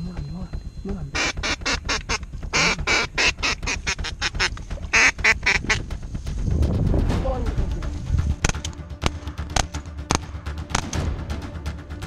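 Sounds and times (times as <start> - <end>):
ducks quacking: 1.1 - 6.0.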